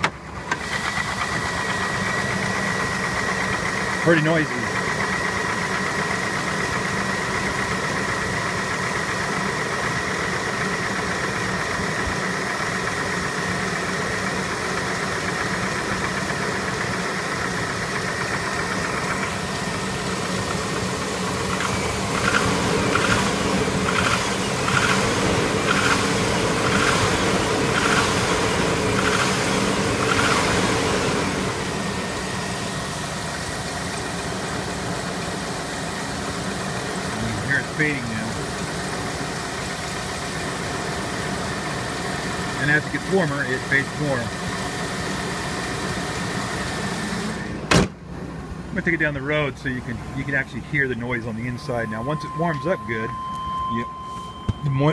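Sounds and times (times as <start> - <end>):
car engine idling: 0.0 - 54.9
fast engine tick-knock: 21.5 - 30.6
loud engine clacks: 21.6 - 30.6.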